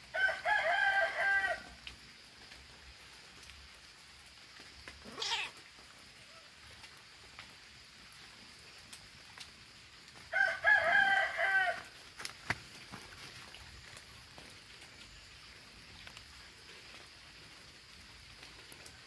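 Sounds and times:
cat yowling: 0:05.0 - 0:05.6.

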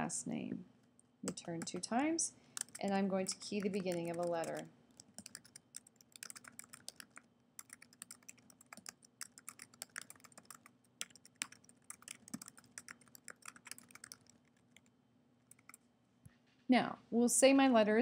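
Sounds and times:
keyboard key clicks: 0:02.6 - 0:14.3.

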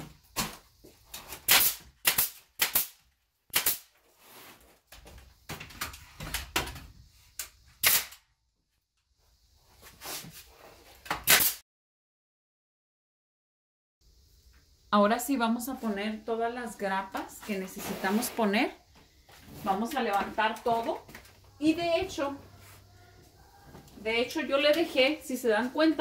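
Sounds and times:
nail gun firing into wood: 0:01.5 - 0:03.9, 0:07.8 - 0:08.2, 0:11.2 - 0:11.6.

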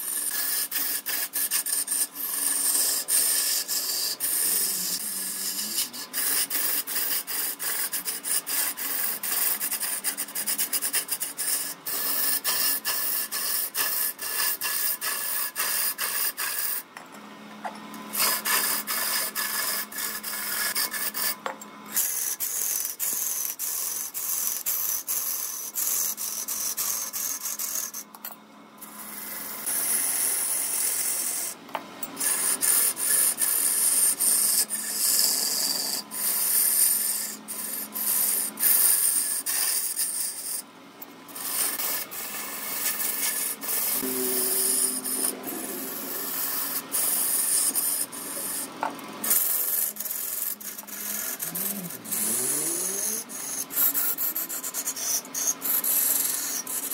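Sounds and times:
lathe tool scraping wood: 0:00.0 - 0:16.9, 0:18.0 - 0:28.2, 0:28.8 - 0:40.7, 0:41.3 - 0:56.9
lathe motor hum: 0:41.4 - 0:54.6.

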